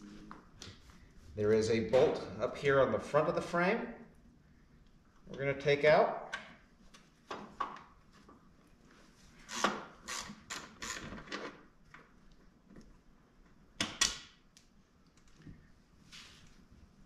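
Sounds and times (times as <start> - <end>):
ratchet strokes: 9.4 - 11.1.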